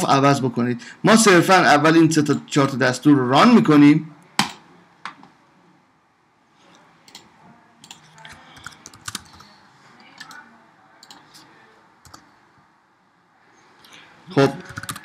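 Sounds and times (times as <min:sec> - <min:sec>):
computer keyboard key presses: 0:08.6 - 0:09.4, 0:14.6 - 0:15.0.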